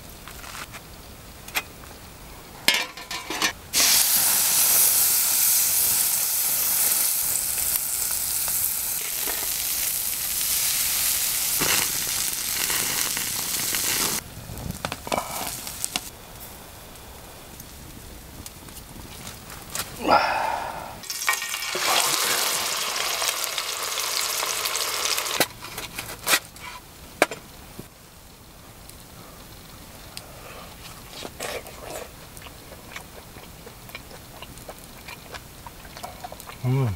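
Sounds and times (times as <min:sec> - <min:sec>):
meat sizzling on a grill pan: 0:03.7 - 0:14.2, 0:15.2 - 0:16.1, 0:21.0 - 0:25.5.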